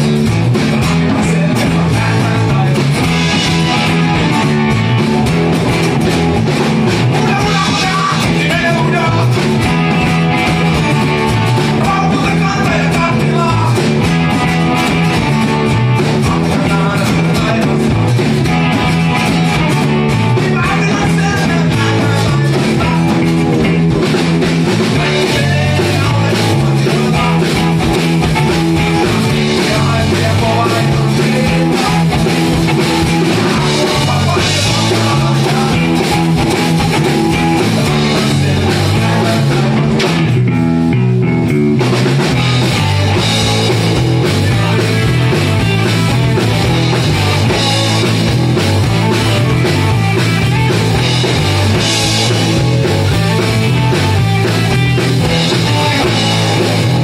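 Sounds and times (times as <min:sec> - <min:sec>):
rock band playing live: 0:00.0 - 0:57.0
lead vocal singing: 0:00.9 - 0:04.6, 0:07.0 - 0:09.8, 0:10.7 - 0:14.1, 0:15.5 - 0:18.1, 0:19.8 - 0:23.8, 0:24.7 - 0:40.2.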